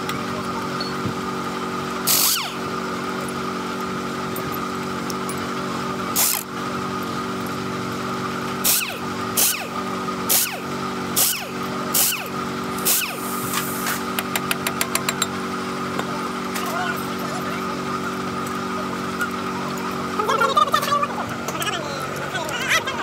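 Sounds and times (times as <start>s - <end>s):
impact wrench bursts: 2.0s - 2.7s, 6.1s - 6.5s, 8.6s - 15.3s.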